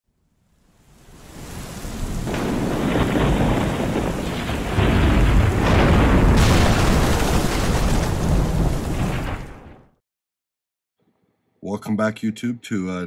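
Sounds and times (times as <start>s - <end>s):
heavy rain: 0.7s - 9.9s
rolling thunder rumble: 1.3s - 9.9s
thunder crash: 1.3s - 10.0s.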